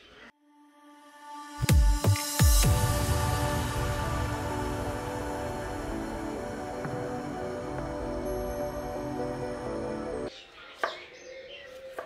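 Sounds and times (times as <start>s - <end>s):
background music: 0.3s - 11.0s
faint birds chirping: 10.1s - 12.0s.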